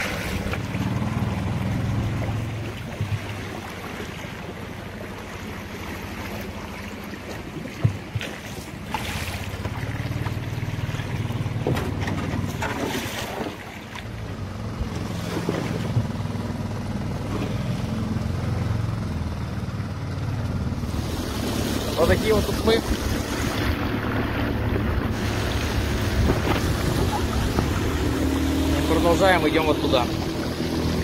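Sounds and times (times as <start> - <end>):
river rapid rushing: 0.0 - 7.6, 20.8 - 31.0
pole knocking and splashing: 2.0 - 4.2, 6.2 - 14.1, 14.8 - 16.2, 21.0 - 28.9
wind on microphone: 22.2 - 28.8.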